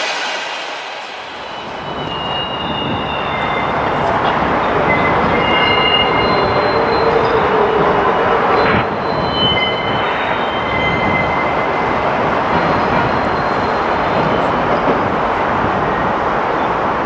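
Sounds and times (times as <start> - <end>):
train rumbling on track: 0.0 - 17.0
wheel squeals: 1.5 - 15.0.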